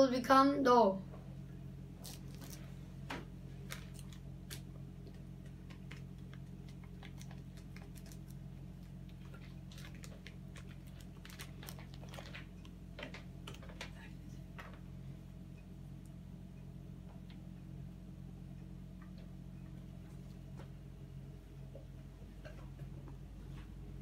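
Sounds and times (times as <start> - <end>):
steady low hum: 0.0 - 24.0
paper and plastic rustling clicks: 2.0 - 14.0.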